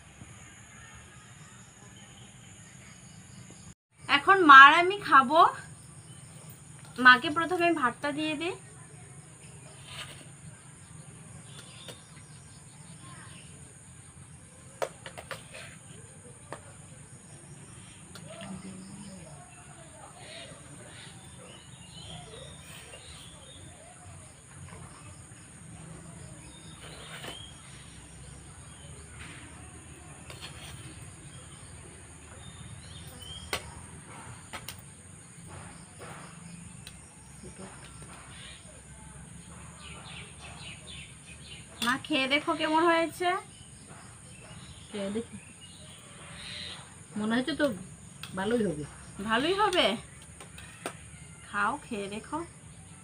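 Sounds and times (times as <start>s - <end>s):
spoon scraping steel bowl: 15.0s - 16.0s, 26.6s - 27.8s, 30.2s - 31.2s.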